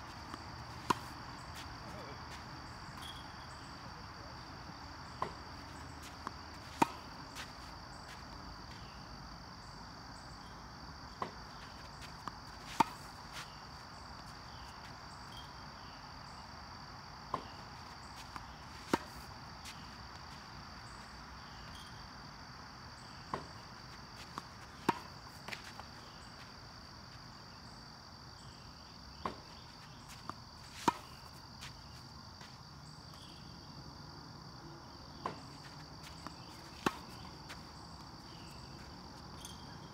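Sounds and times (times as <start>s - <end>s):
insects droning: 0.0s - 39.9s
tennis racket hitting ball: 6.2s - 7.1s, 24.3s - 25.8s.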